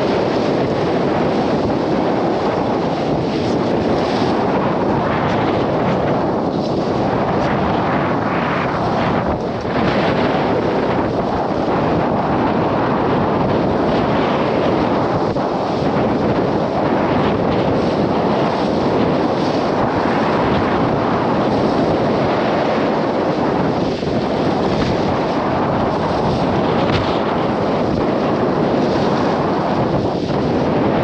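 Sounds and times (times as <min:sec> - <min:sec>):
waves breaking along hull: 0:00.0 - 0:31.0
wind buffeting microphone: 0:00.0 - 0:31.0.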